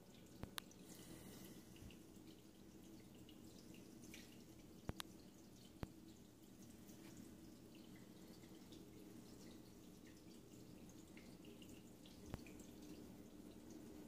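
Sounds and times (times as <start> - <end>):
low steady hum: 0.0 - 14.0
faint ticks: 0.4 - 1.1, 4.1 - 6.0.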